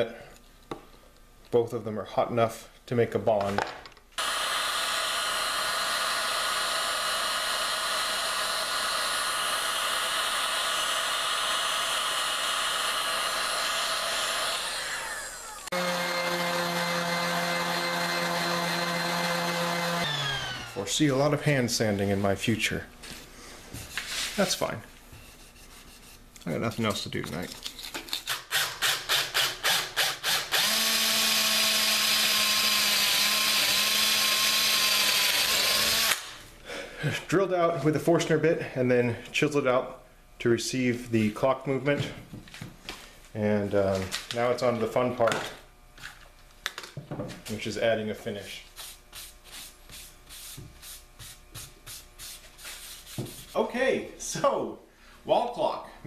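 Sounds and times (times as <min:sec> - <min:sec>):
cordless drill boring into wood: 0:04.2 - 0:20.9, 0:28.3 - 0:36.4
heat gun blowing: 0:04.2 - 0:21.0, 0:28.3 - 0:36.4
orbital sander running: 0:04.2 - 0:21.1, 0:30.2 - 0:36.3.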